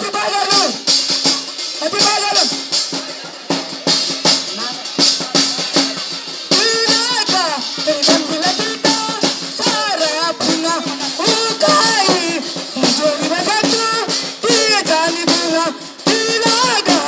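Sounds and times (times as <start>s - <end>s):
rattling percussion: 0.0s - 17.0s
person singing folk song: 6.5s - 17.0s.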